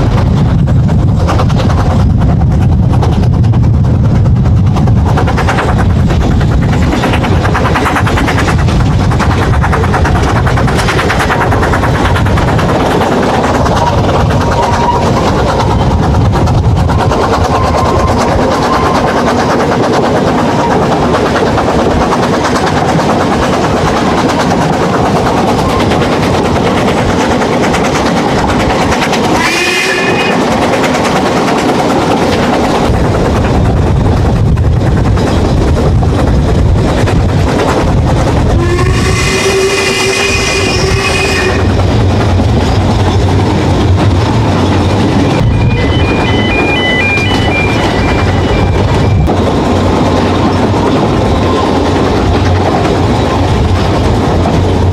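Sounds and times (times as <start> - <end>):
train clattering on track: 0.0 - 54.9
short high tone: 45.4 - 49.2.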